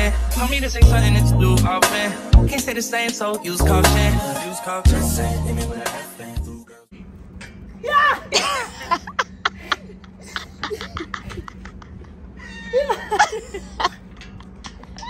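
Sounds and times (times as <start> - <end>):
women squealing: 7.8 - 9.1, 12.4 - 13.9
women laughing: 7.9 - 15.0.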